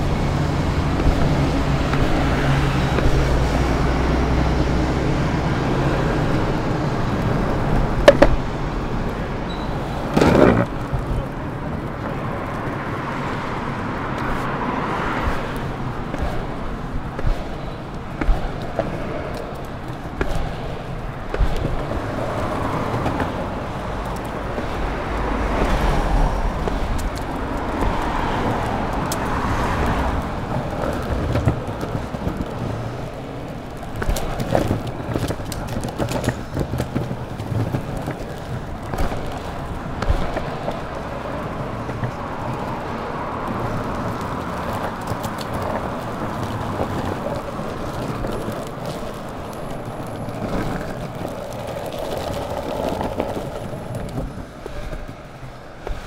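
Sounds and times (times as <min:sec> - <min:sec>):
longboard wheels rolling on pavement: 0:00.0 - 0:56.0
road traffic: 0:00.0 - 0:56.0
sharp clicks and knocks: 0:07.2 - 0:09.2.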